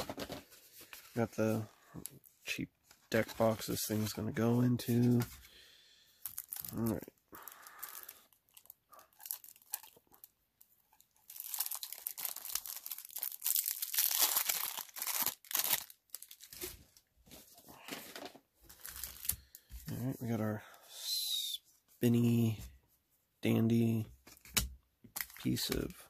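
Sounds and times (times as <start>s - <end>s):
plastic wrap tearing and crinkling: 6.3s - 7.0s, 7.6s - 10.3s, 11.0s - 16.8s, 18.7s - 19.5s.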